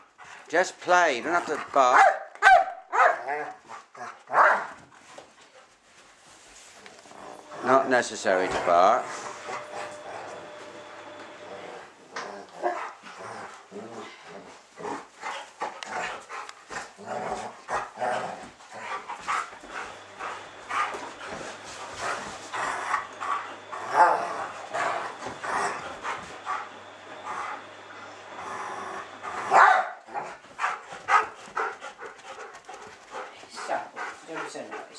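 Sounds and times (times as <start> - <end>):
dogs barking: 1.8 - 4.8, 29.3 - 31.8
dogs scuffling: 3.6 - 13.7, 14.3 - 28.0, 29.1 - 34.9.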